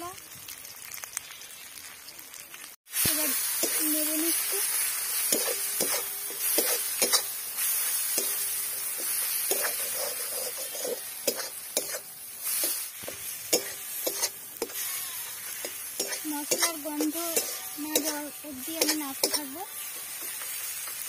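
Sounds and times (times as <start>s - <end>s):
oil sizzling: 0.0s - 21.0s
metal spatula scraping a pan: 3.6s - 21.0s.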